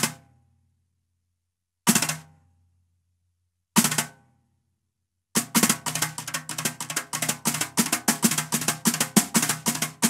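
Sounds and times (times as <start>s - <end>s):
wire brushes on snare drum: 5.4s - 10.0s.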